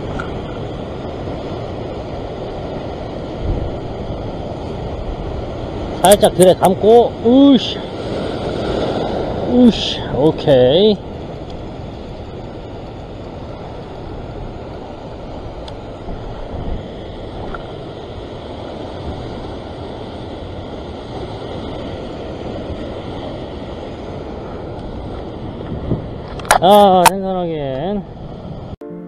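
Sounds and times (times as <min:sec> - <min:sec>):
surf washing against rocks: 0:00.0 - 0:28.8.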